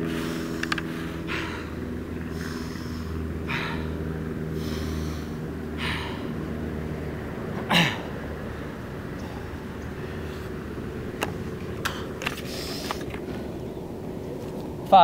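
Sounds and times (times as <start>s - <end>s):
runner breathing hard: 0.0s - 6.8s, 11.7s - 13.7s
steady low hum: 0.0s - 15.0s.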